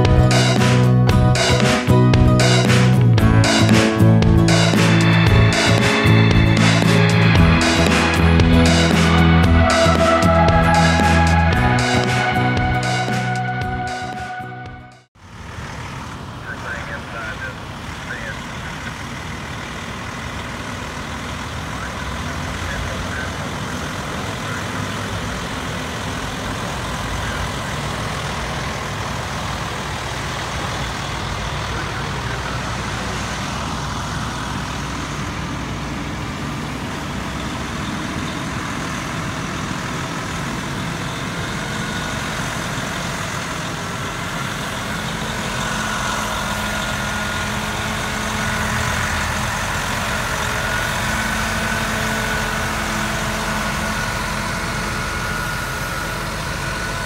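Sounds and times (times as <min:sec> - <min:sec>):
steady tone: 0:00.0 - 0:15.1
heavy engine running: 0:00.0 - 0:57.0.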